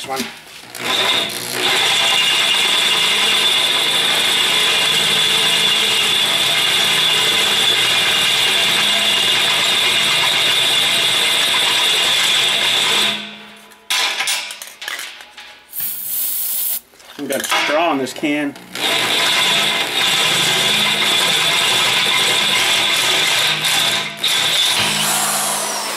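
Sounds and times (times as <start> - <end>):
drill bit screeching through metal: 0.8 - 10.7, 21.2 - 25.9.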